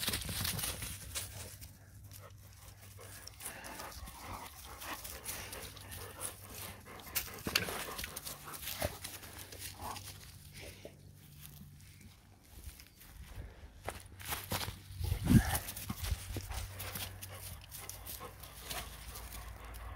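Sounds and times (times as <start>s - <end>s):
rustling in dry leaves: 0.0s - 19.9s
dog panting: 1.3s - 11.0s, 15.4s - 19.9s.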